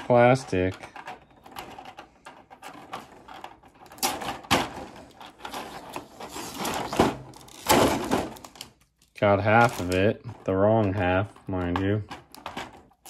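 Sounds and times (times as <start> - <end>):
plastic packaging crinkling: 2.8 - 10.3
small plastic parts clicking: 10.8 - 13.0.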